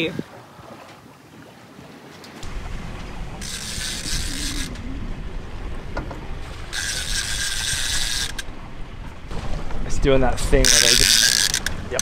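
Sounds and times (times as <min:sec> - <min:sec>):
water: 0:00.0 - 0:12.0
wind: 0:00.0 - 0:12.0
fishing reel whirring: 0:03.4 - 0:04.8, 0:06.7 - 0:08.5, 0:10.6 - 0:12.0.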